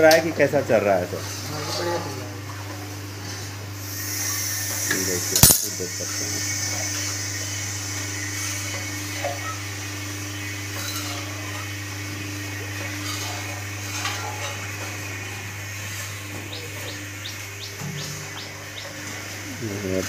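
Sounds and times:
boiling milk frothing: 0:00.8 - 0:05.2, 0:06.0 - 0:16.4
steam hissing: 0:03.8 - 0:08.7.

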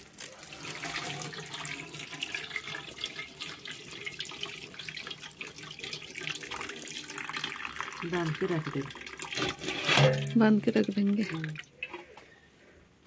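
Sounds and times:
liquid trickling into metal bowl: 0:00.0 - 0:12.3.

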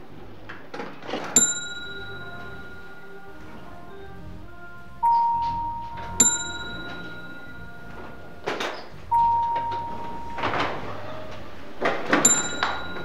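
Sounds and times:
elevator ding: 0:01.3 - 0:13.0
sliding doors whooshing: 0:02.1 - 0:13.0
electronic beep: 0:05.0 - 0:11.0.

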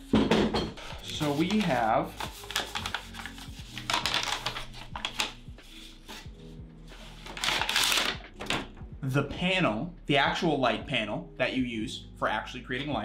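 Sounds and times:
soft background music: 0:00.0 - 0:13.0
packaging rustling and clicking: 0:01.0 - 0:05.4, 0:07.2 - 0:08.7.

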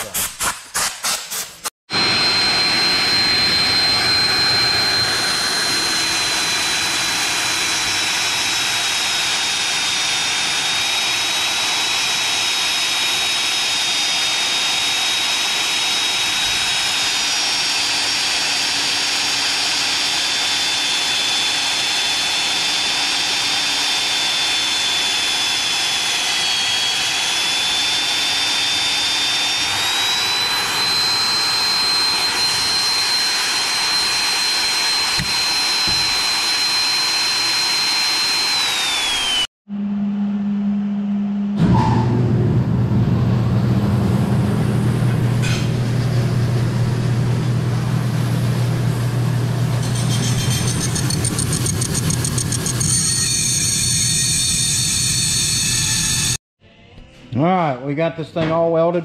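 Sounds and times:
drill whining boring steel: 0:01.9 - 0:39.5, 0:49.7 - 0:56.4.

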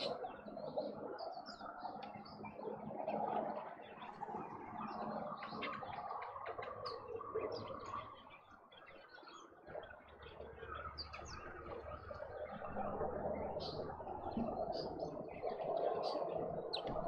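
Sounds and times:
wild birds chirping: 0:00.0 - 0:17.0.

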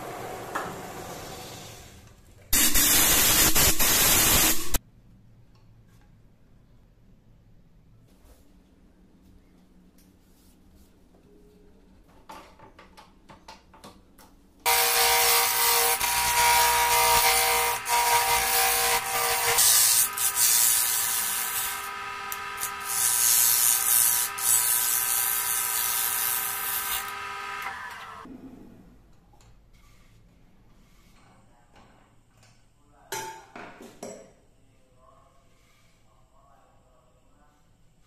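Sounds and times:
chisel cutting wood hiss: 0:14.7 - 0:27.8
wood lathe whine: 0:14.7 - 0:28.3.

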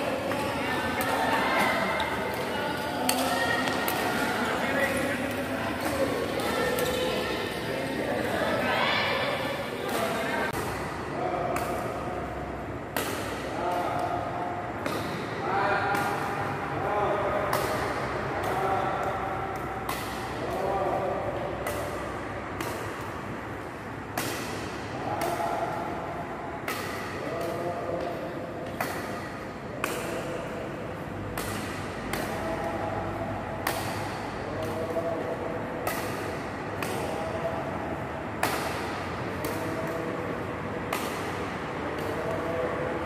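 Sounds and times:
steady hall hiss: 0:00.0 - 0:43.0
racket hitting shuttlecock: 0:00.1 - 0:08.3, 0:09.1 - 0:14.2, 0:14.8 - 0:16.5, 0:17.3 - 0:43.0
badminton racket striking shuttlecock: 0:12.9 - 0:14.0, 0:24.1 - 0:25.4, 0:35.8 - 0:37.1.

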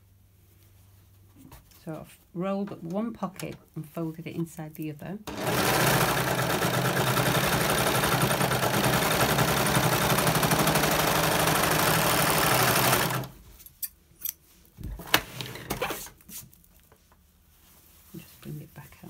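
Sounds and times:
sewing machine stitching fast: 0:05.3 - 0:13.4.

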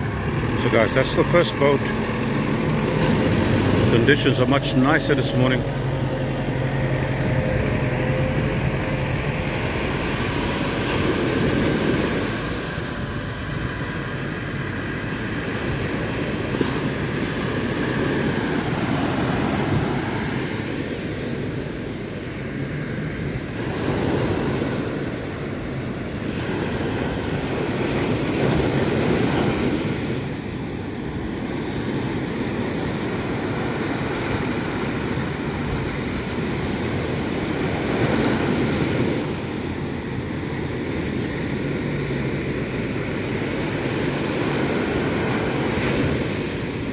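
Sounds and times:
surf breaking: 0:00.0 - 0:21.2
faint boat engine drone: 0:00.0 - 0:46.9.

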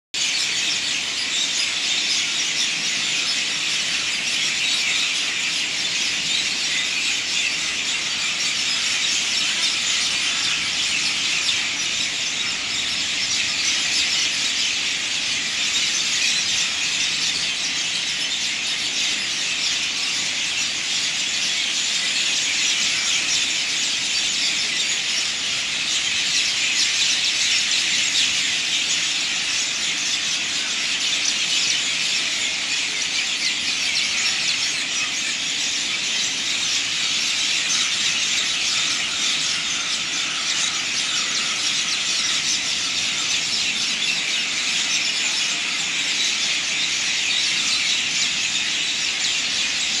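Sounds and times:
insect chorus buzzing: 0:33.3 - 0:50.0.

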